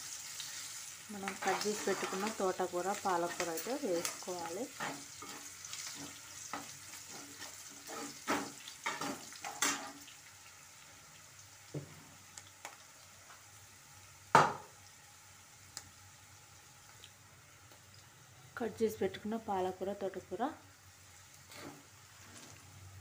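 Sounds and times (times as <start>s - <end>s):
onions sizzling in oil: 0.0s - 23.0s
spatula scraping a pan: 1.3s - 2.4s, 3.9s - 10.0s, 21.4s - 22.6s
loud sharp knock: 14.4s - 14.7s.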